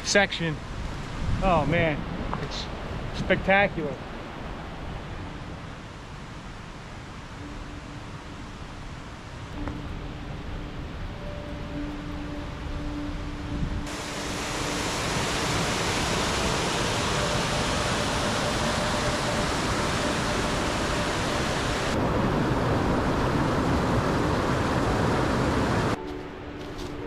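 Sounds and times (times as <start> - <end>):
whitewater rushing: 13.9 - 26.0.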